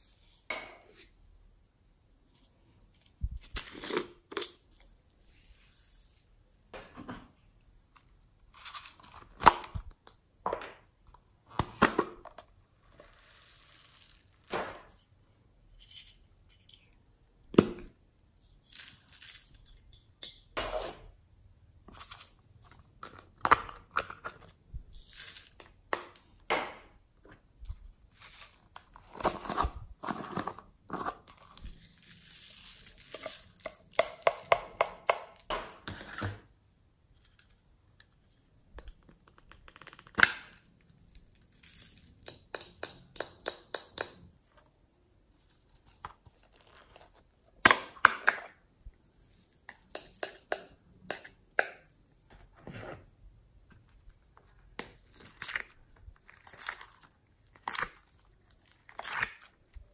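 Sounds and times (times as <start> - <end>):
plastic crinkling and tearing: 55.0 - 59.8.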